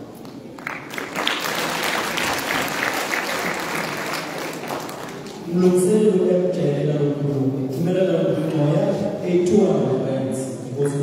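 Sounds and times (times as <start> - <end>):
audience applauding: 0.6 - 5.4.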